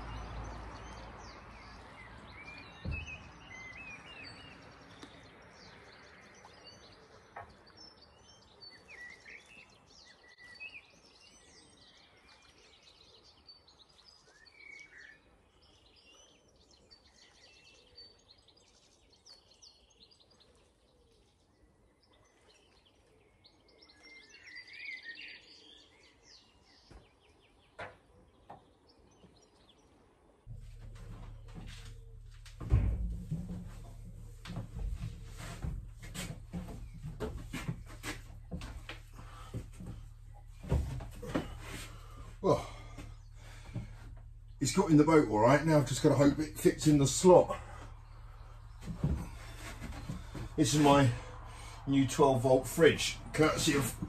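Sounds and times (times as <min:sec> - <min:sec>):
small birds chirping: 0:00.0 - 0:54.0
low hum: 0:30.5 - 0:54.0.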